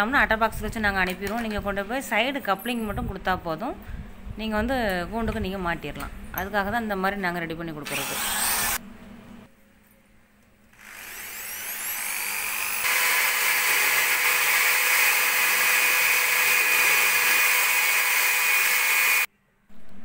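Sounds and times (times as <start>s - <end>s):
electric drill boring pipe: 7.9s - 8.8s, 10.8s - 19.3s.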